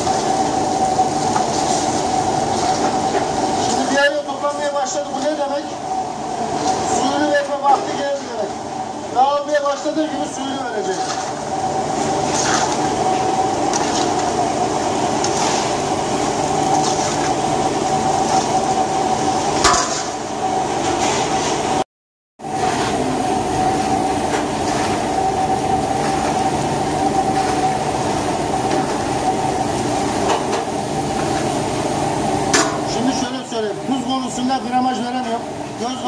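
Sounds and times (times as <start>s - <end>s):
ladle stirring rice in a pot: 0.0s - 5.8s, 9.6s - 19.4s, 22.6s - 33.0s
machine hum: 0.0s - 21.8s, 22.4s - 36.0s.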